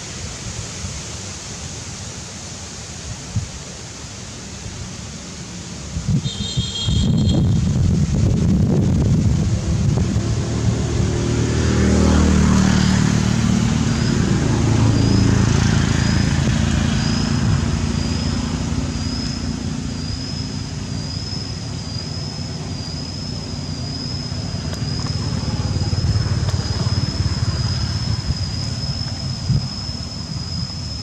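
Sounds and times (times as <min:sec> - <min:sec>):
high wavering whine: 0:03.8 - 0:31.0
engine running: 0:07.2 - 0:31.0.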